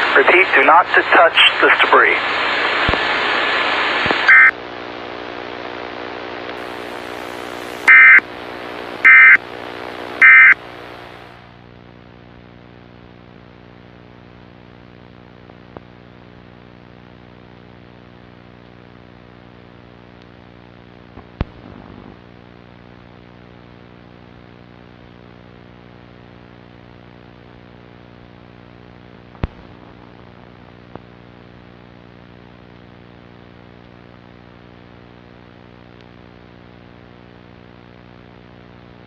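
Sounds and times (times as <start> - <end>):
harsh buzzing data bursts: 4.2 - 4.6, 6.6 - 11.4
electronic blip: 7.9 - 8.2, 9.1 - 9.4, 10.2 - 10.6.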